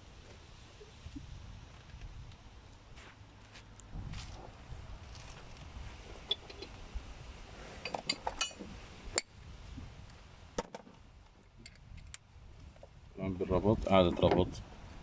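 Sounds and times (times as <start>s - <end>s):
hand tools clinking: 7.8s - 9.2s.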